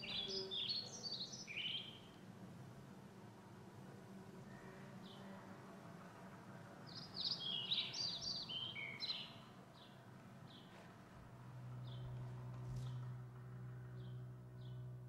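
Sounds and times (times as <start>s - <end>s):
songbird singing: 0.0s - 2.2s, 6.8s - 15.0s
faint low hum: 0.0s - 15.0s.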